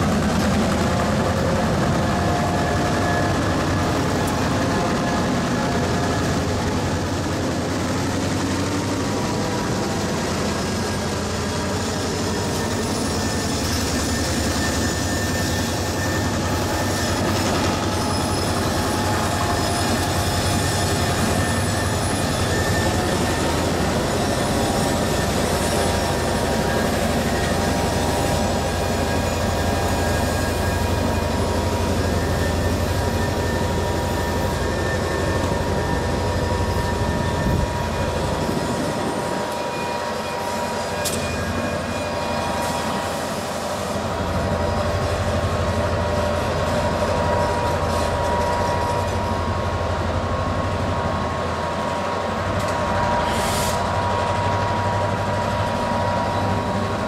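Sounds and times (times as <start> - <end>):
locomotive engine rumble: 0.0 - 40.0
wheel squeal: 10.1 - 49.6.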